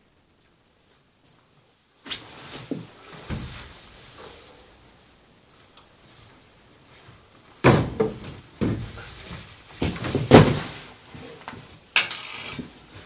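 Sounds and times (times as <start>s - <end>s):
heavy thumps of person dropping: 2.6s - 3.7s, 7.6s - 10.9s.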